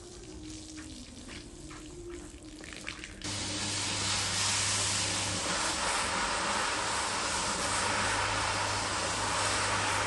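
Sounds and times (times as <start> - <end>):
soft wet sounds on rug: 0.0 - 3.3
rotary floor scrubbing machine: 3.3 - 10.0.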